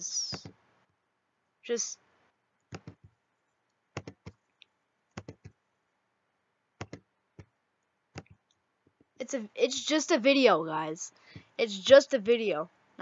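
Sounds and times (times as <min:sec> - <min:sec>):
computer mouse clicks: 0:00.2 - 0:00.6, 0:02.6 - 0:05.6, 0:06.8 - 0:09.1.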